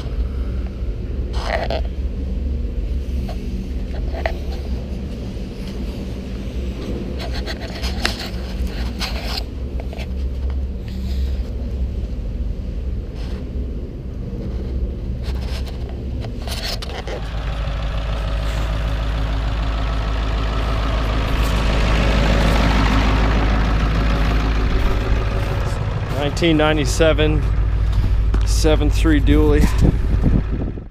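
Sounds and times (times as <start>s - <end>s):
low rumble: 0.0s - 30.9s
truck engine idling: 0.0s - 30.9s
footsteps: 20.6s - 28.9s.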